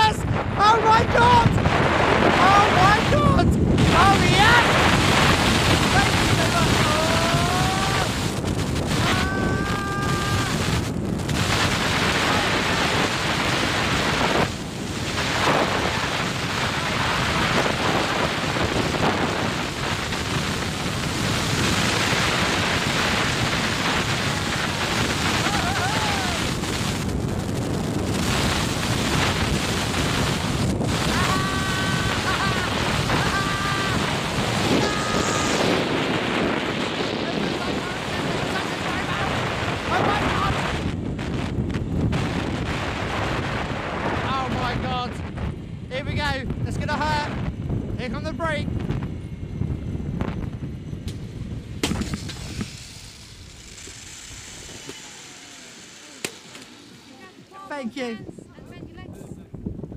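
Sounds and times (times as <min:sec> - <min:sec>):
wind rushing over microphone: 0:00.0 - 0:59.9
trolley running on steel cable: 0:28.1 - 0:36.0, 0:51.0 - 0:58.0.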